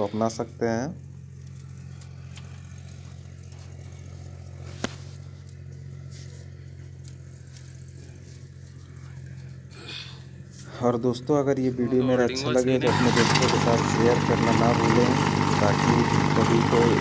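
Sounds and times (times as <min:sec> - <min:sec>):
diesel engine idling: 0:11.6 - 0:17.0.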